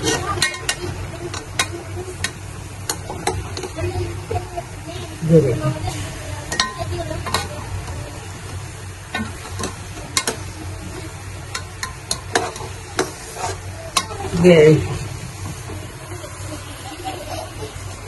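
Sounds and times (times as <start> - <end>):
ladle clinking and scraping pot: 0.0 - 3.8, 9.1 - 16.4
meat sizzling: 0.0 - 18.0.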